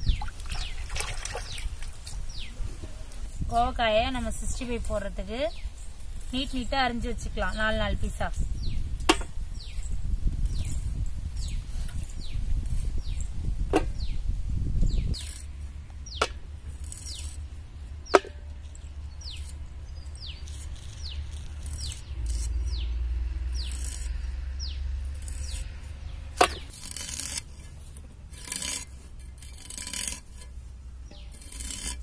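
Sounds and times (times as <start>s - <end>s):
birds chirping: 0.0s - 26.7s.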